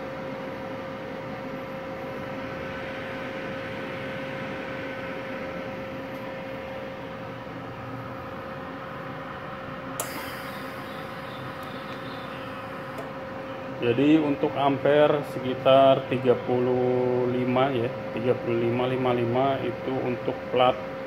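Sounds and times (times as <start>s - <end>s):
welder cooling fan whirring: 0.0s - 21.0s
sharp click: 10.0s - 13.1s
high hiss: 10.0s - 13.2s.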